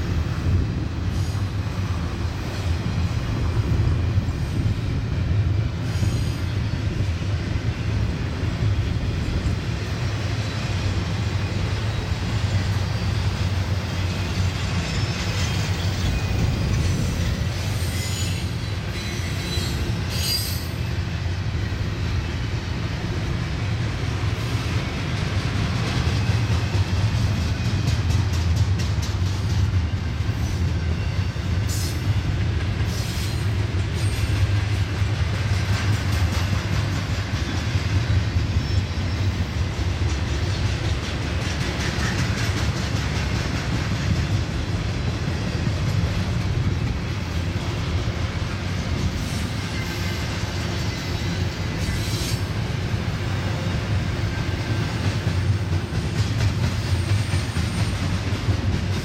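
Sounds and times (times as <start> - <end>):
train wheels rumbling on rail: 0.0 - 59.0
high-pitched wheel squeals: 17.7 - 20.8.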